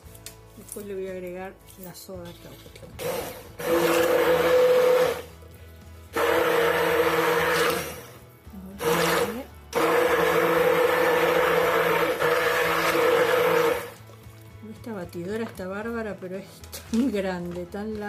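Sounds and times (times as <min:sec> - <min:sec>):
immersion blender running: 0:03.0 - 0:05.4, 0:06.1 - 0:08.2, 0:08.8 - 0:14.0.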